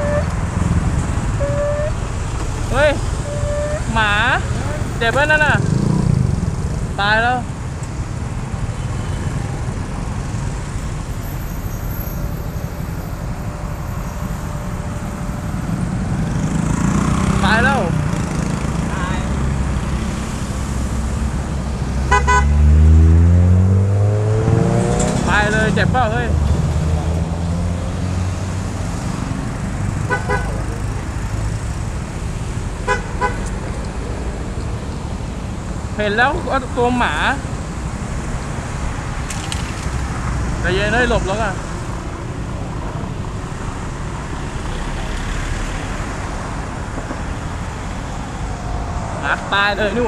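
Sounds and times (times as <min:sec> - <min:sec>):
vehicle horn toots: 0:00.0 - 0:00.4, 0:01.4 - 0:02.0, 0:22.1 - 0:22.6, 0:30.1 - 0:30.6, 0:32.9 - 0:33.4
street traffic rumble: 0:00.0 - 0:50.0.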